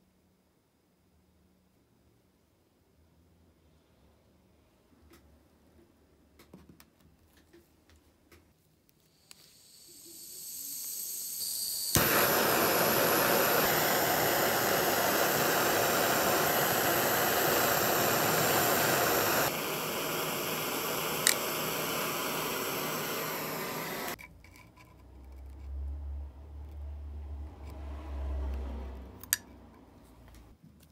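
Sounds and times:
gas blowtorch hissing: 9.0 - 24.2.

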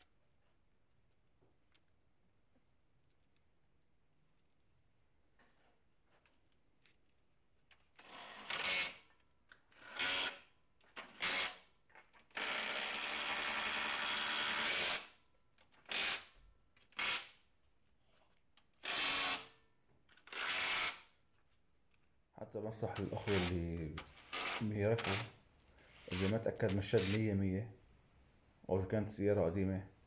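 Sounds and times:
impact wrench tightening bolts: 24.1 - 25.3.

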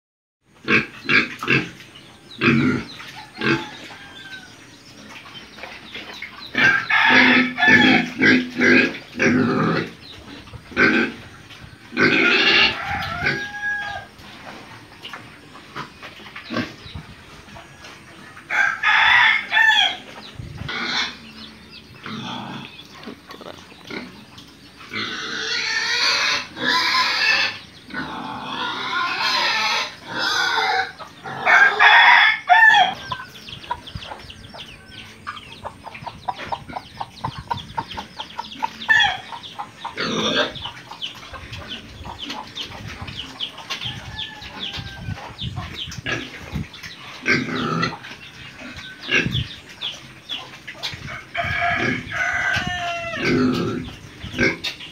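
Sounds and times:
pig grunts: 2.4 - 3.7, 7.3 - 10.0, 47.2 - 48.0, 53.2 - 54.7
pig squeals: 6.5 - 10.0, 11.9 - 14.1, 24.9 - 33.2
rooster crowing: 12.5 - 14.2, 18.5 - 20.0, 31.4 - 33.2, 51.1 - 53.2.

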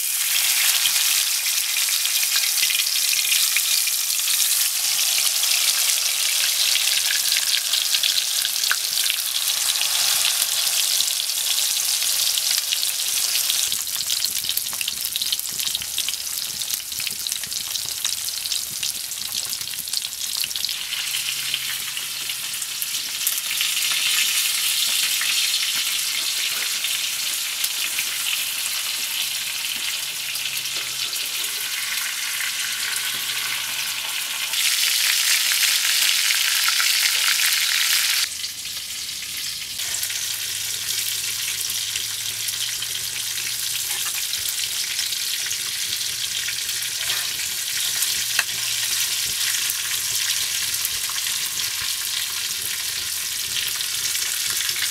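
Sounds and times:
fish sizzling in hot oil: 0.0 - 54.9.

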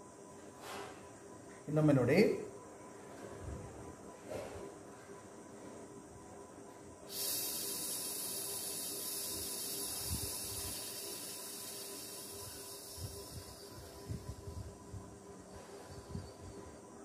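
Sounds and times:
man breathing out hissing: 7.1 - 14.5.

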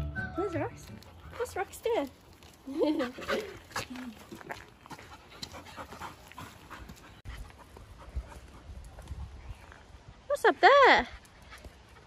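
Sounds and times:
dog panting: 0.9 - 8.8.

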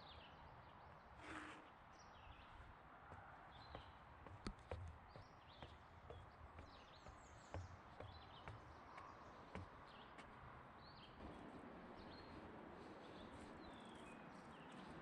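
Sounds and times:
small birds chirping: 0.0 - 2.8, 3.4 - 15.0
footsteps on wooden stairs: 3.1 - 10.5.

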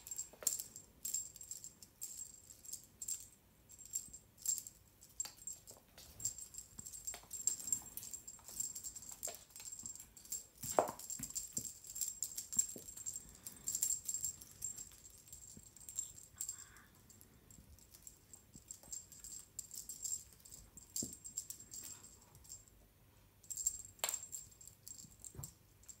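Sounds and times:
small bell jingling: 0.0 - 22.7, 23.4 - 26.0
kittens pouncing on floor: 5.7 - 14.8.

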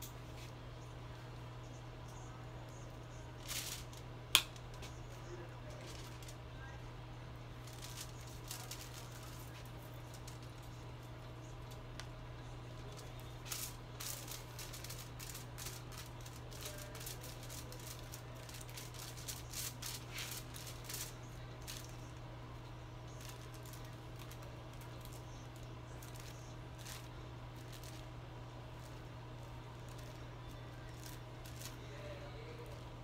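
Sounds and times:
steady low hum: 0.0 - 33.0
foil crinkling: 3.4 - 4.0, 5.7 - 6.4, 7.6 - 10.8, 12.8 - 22.1, 23.1 - 28.1, 29.7 - 32.8.

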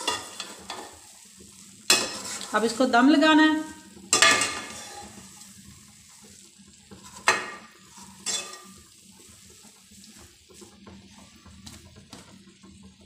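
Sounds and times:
spoon stirring rice in metal pan: 0.0 - 2.8, 3.6 - 12.3
spoon knocking against pan: 7.0 - 8.7.

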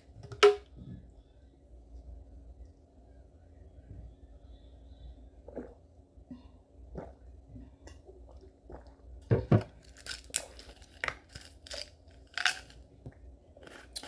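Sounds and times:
person gulping drink: 5.5 - 5.9, 6.9 - 7.3, 7.9 - 11.8
plastic bottle thumping down: 9.3 - 9.8.

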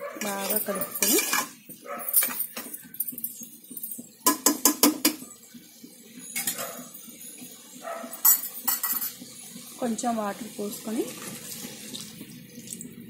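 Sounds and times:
metal spoon scraping pot: 0.2 - 3.4
spoon clinking on pot: 0.2 - 5.2, 8.2 - 9.2.

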